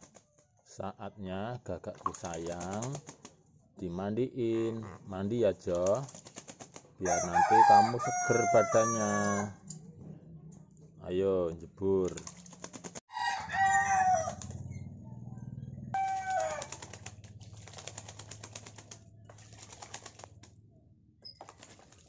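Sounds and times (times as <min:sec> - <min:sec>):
bird splashing in water: 0:02.0 - 0:03.4, 0:05.7 - 0:08.3, 0:12.0 - 0:13.0, 0:16.0 - 0:20.5, 0:21.3 - 0:22.0.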